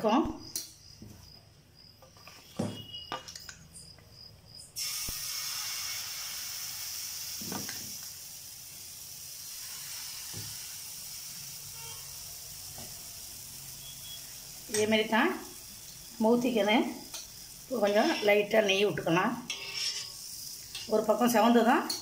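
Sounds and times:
batter sizzling on hot pan: 4.8s - 22.0s.

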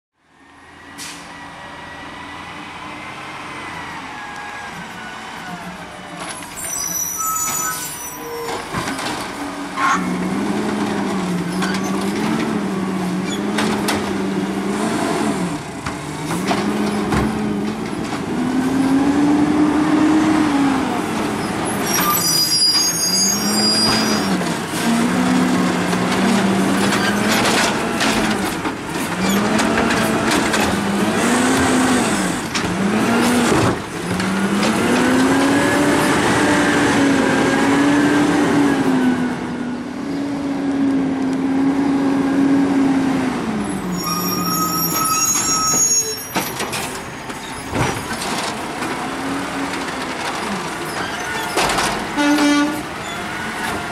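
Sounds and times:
air brake hisses: 1.0s - 1.4s
garbage truck engine revving: 8.6s - 45.6s, 46.6s - 53.9s.

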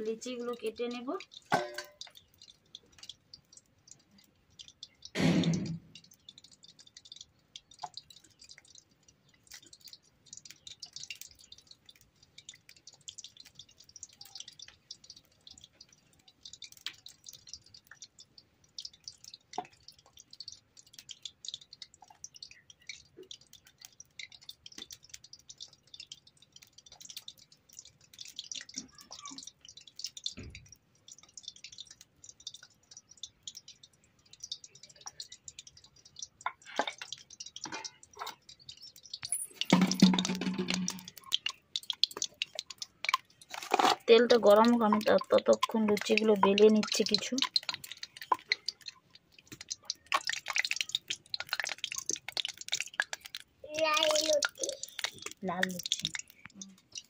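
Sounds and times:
oil crackling and popping: 0.0s - 57.0s.

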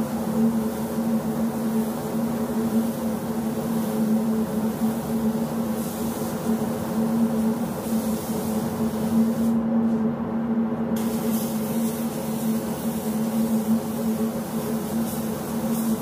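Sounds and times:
spray gun hissing: 0.0s - 9.6s, 11.0s - 16.0s.

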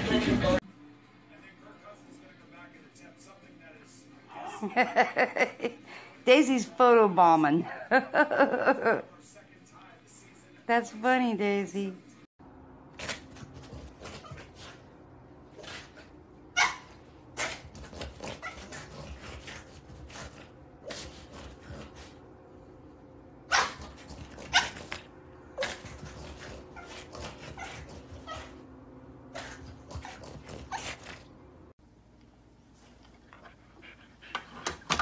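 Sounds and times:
dog barking and yipping: 16.5s - 18.9s, 23.5s - 25.0s.

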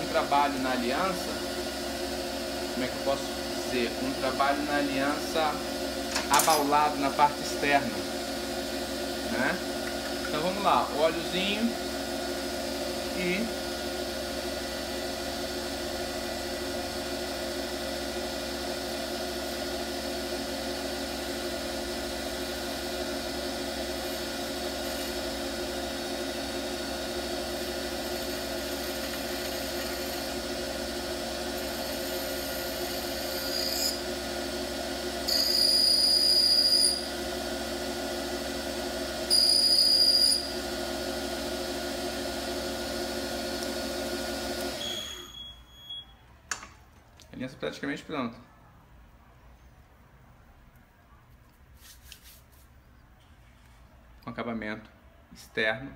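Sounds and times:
lathe motor humming: 0.0s - 45.0s
high-pitched screech of tool cutting metal: 33.2s - 34.0s, 35.3s - 37.1s, 39.3s - 40.5s.

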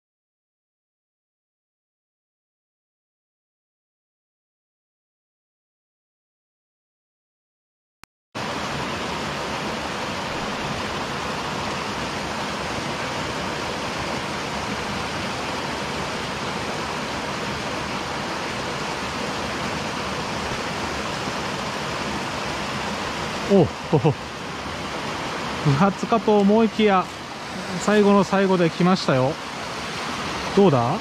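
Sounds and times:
waterfall pouring into a pool: 8.4s - 31.0s.

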